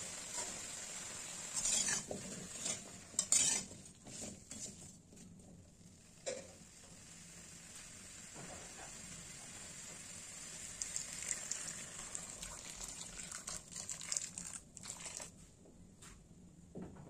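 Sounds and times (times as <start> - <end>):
water pouring and splashing: 10.8 - 15.4.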